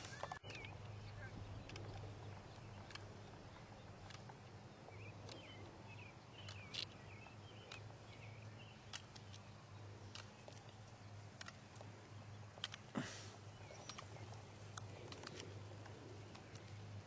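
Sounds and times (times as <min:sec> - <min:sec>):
low steady hum: 0:00.0 - 0:17.0
small birds chirping: 0:00.0 - 0:17.0
sharp clicks: 0:01.5 - 0:03.4, 0:04.0 - 0:04.5, 0:06.4 - 0:16.9.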